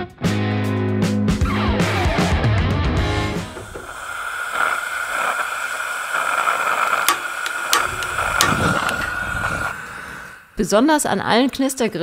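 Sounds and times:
gas hissing from grill burner: 3.1 - 10.9
stick lighter clicks: 6.8 - 9.6.

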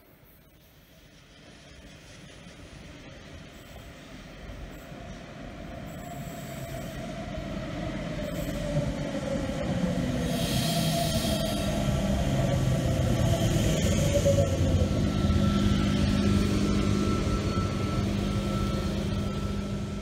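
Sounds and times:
electric train whine: 0.0 - 20.0
high wheel squeal: 10.2 - 12.4.

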